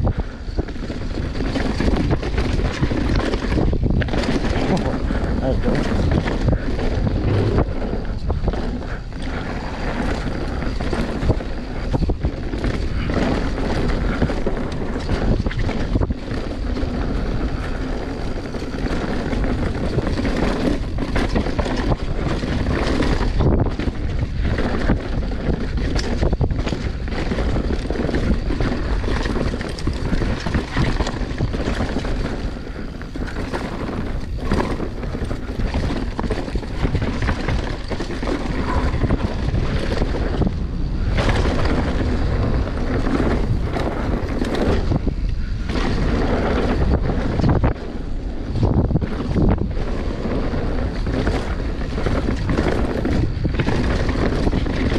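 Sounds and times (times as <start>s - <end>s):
bike rattles and knocks: 0.0s - 54.9s
bike tyre noise: 0.0s - 54.9s
wind buffeting microphone: 0.0s - 54.9s.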